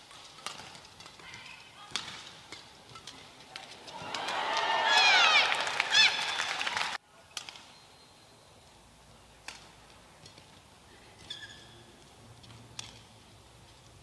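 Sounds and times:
racket hitting shuttlecock: 0.0s - 5.4s, 12.5s - 13.1s
shoe squeaks on court: 11.2s - 11.9s.

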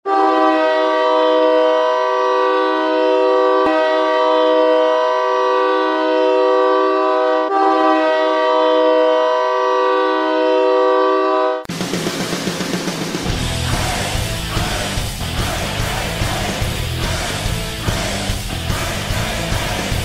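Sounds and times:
goal horn long blast: 0.0s - 11.7s.

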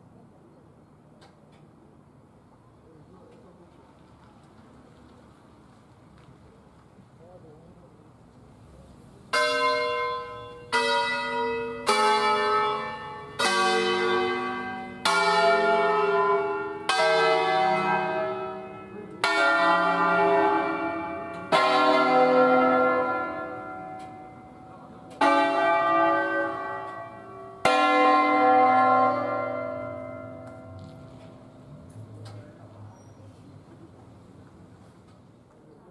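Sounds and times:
church bells ringing: 9.3s - 33.1s.

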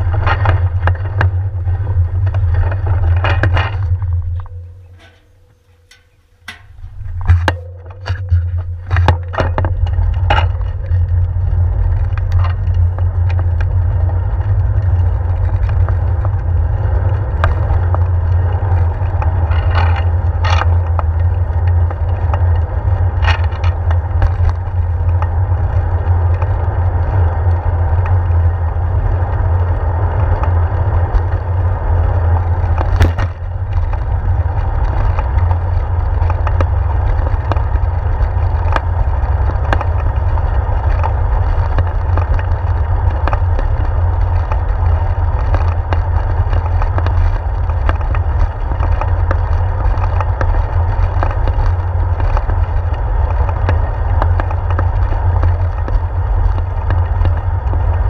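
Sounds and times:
bicycle knocks over bumps: 0.0s - 16.6s, 29.5s - 58.0s
wind and road rumble: 0.0s - 58.0s.

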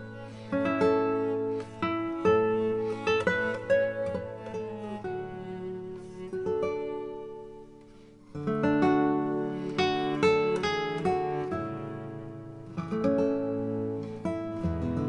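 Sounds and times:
acoustic guitar plucked notes: 8.4s - 15.0s.

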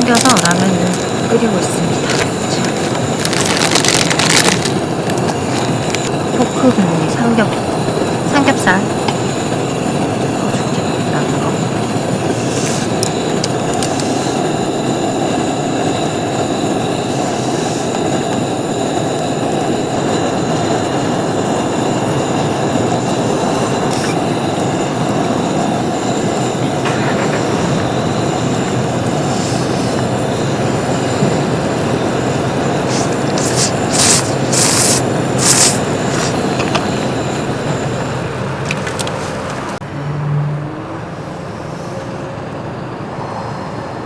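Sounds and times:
pot boiling hard: 0.0s - 37.7s.

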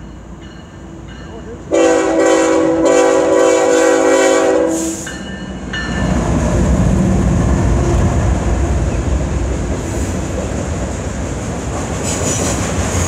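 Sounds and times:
locomotive air horn blast: 1.7s - 5.1s
locomotive engine and wheels passing: 4.9s - 13.0s.

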